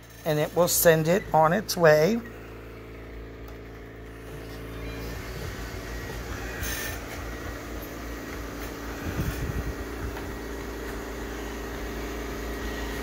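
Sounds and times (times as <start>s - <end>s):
robot vacuum motor hum: 0.0s - 13.0s.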